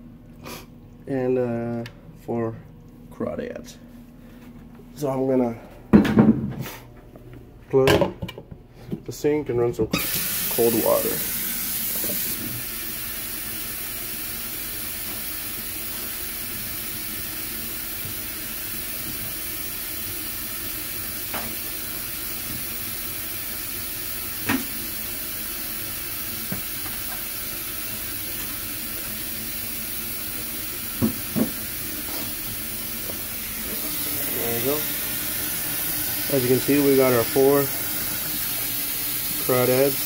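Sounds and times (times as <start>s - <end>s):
water running into sink: 10.0s - 40.0s.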